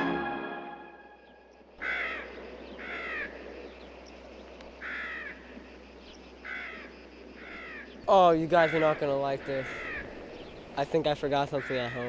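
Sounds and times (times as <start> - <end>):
faint outdoor background hiss: 0.5 - 12.0
crow cawing: 1.8 - 3.4, 4.8 - 5.6, 6.4 - 10.6, 11.3 - 12.0.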